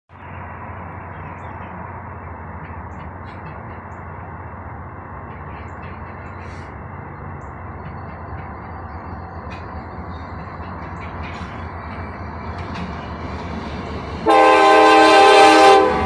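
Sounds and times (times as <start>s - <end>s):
birds chirping: 5.4s - 13.5s.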